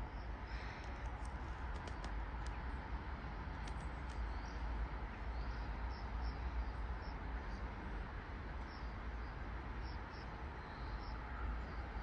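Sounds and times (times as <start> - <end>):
low rumble and hiss: 0.0 - 12.0
small birds chirping: 3.6 - 7.9, 8.6 - 12.0.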